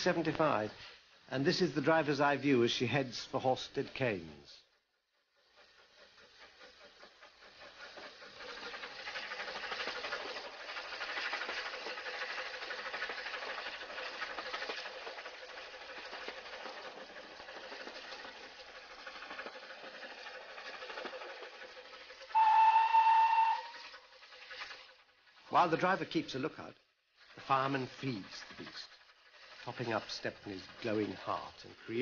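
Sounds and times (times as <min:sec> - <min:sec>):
steam engine hiss and rattle: 0:00.0 - 0:32.0
steam whistle: 0:22.3 - 0:24.0.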